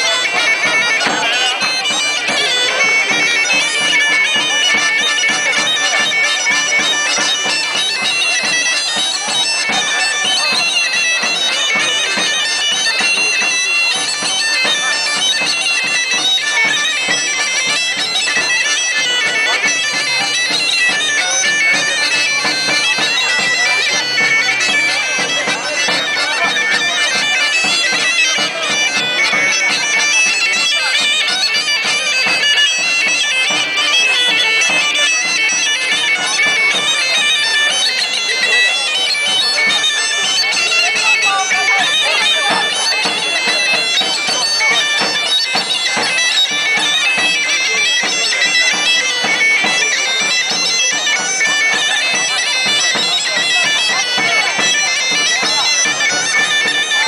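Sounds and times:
bagpipe playing dance tune: 0.0s - 57.0s.

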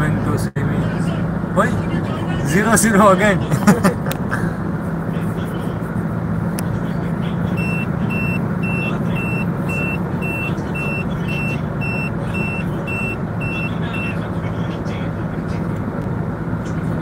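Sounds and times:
engine and tyres humming: 0.0s - 17.0s
high warning beeps: 7.5s - 14.2s.

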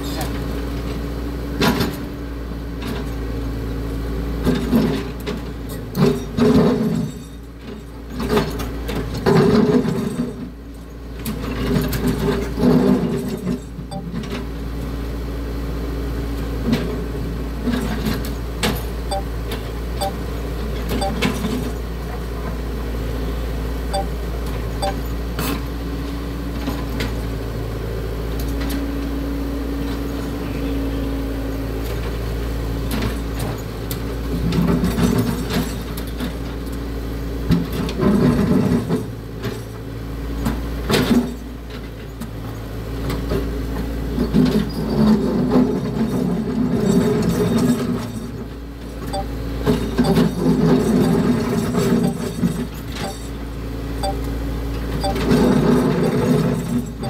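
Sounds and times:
excavator diesel engine running: 0.0s - 57.0s.

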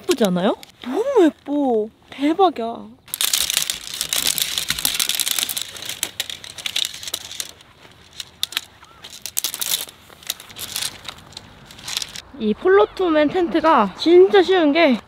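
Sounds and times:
tent poles clattering and clicking: 0.0s - 1.1s, 3.1s - 12.2s
tent fabric rustling: 3.1s - 12.2s.

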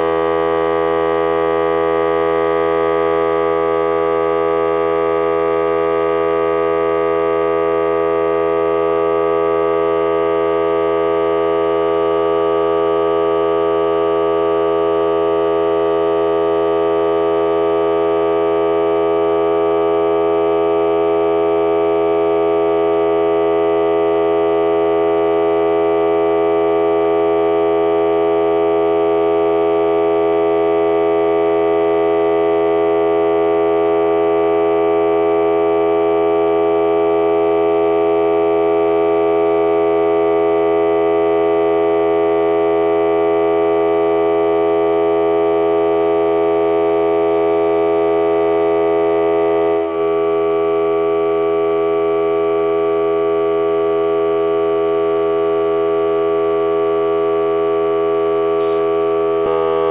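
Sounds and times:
air compressor running: 58.6s - 59.9s.

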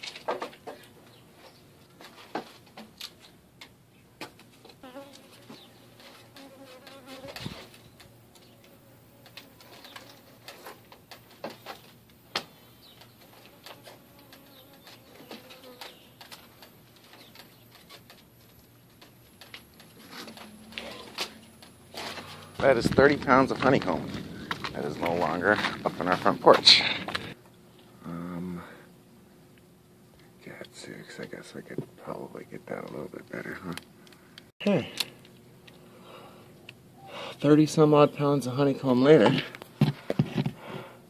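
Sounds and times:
bees buzzing: 12.3s - 16.4s.

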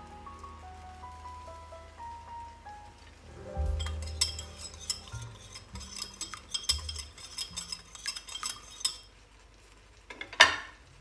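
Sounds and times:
utensil clinking on glass bowl: 3.7s - 9.1s.

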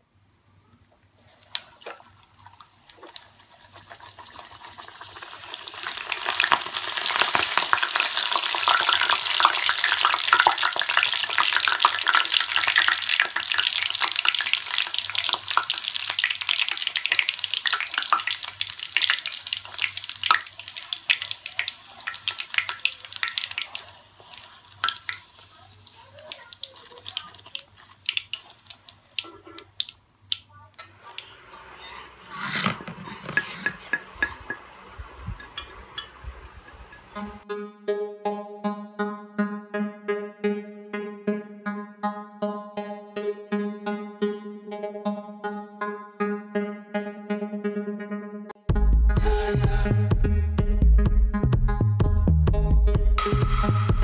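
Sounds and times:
dough deep-frying in hot oil: 1.3s - 32.8s.

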